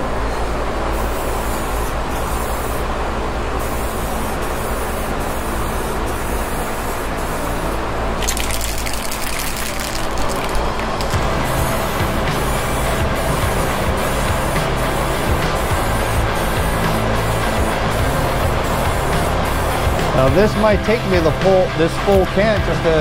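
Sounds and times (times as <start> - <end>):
aerosol spray can hissing: 3.6 - 7.6, 8.2 - 21.4
low hum: 5.6 - 20.8
spray crackling: 8.2 - 22.3.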